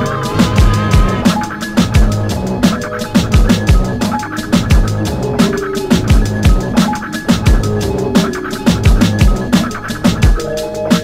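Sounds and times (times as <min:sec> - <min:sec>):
deep kick drums: 0:00.0 - 0:01.2, 0:01.8 - 0:02.6, 0:03.2 - 0:04.0
busy high percussion: 0:00.0 - 0:11.0
drum and bass music: 0:00.0 - 0:11.0.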